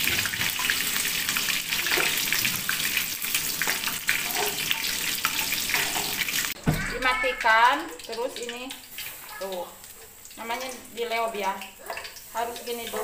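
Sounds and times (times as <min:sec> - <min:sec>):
tap water splashing into sink: 0:00.0 - 0:00.9, 0:01.7 - 0:09.6.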